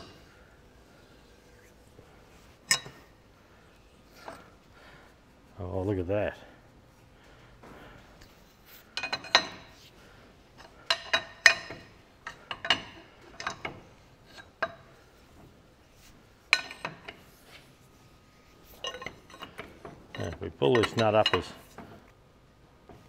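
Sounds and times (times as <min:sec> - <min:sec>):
spanner clinking on metal: 0:02.6 - 0:03.1, 0:09.0 - 0:09.7, 0:10.6 - 0:15.0, 0:18.7 - 0:21.9.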